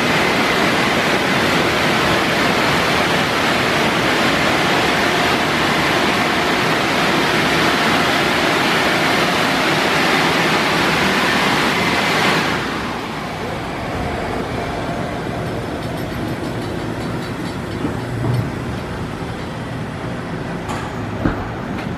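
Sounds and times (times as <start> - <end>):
dryer blowers rushing air: 0.0 - 21.9.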